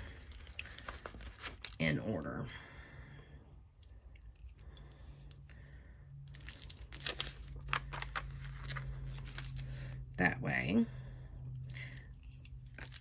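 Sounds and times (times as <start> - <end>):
sticker labels peeling and crinkling: 6.3 - 9.8.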